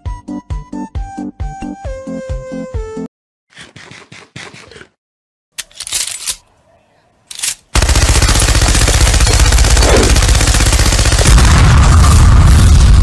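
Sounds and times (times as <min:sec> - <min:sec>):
automatic gunfire: 0:07.8 - 0:12.2
explosion rumble: 0:11.3 - 0:13.0.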